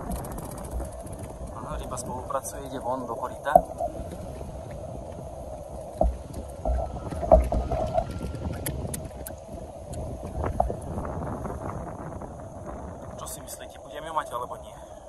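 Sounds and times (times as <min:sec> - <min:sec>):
water lapping against a boat: 0:00.0 - 0:13.6
dull knocks: 0:05.9 - 0:09.2.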